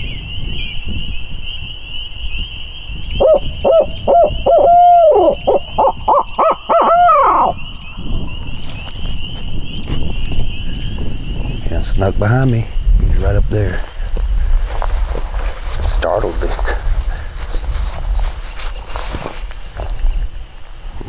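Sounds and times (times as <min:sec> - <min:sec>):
owl call blown on hooter: 0:03.2 - 0:07.6.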